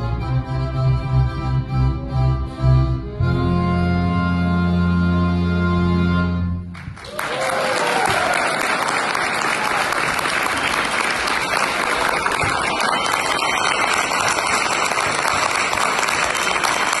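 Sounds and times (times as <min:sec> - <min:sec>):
audience applauding: 0:06.7 - 0:17.0
close hands clapping: 0:06.7 - 0:17.0.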